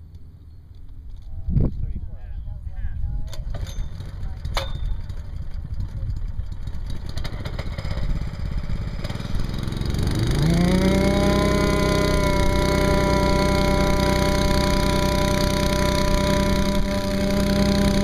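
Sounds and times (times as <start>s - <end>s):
vibracorer buzzing: 9.0s - 18.0s.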